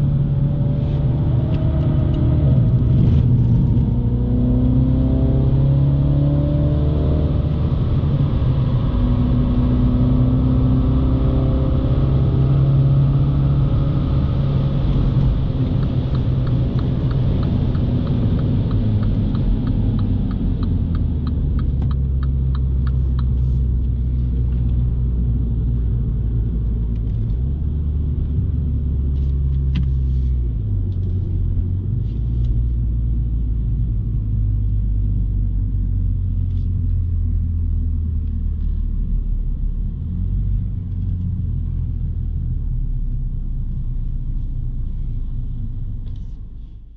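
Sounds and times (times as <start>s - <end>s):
car engine drone: 0.0s - 46.9s
road rumble: 0.0s - 46.9s
light regular ticking: 15.7s - 23.7s.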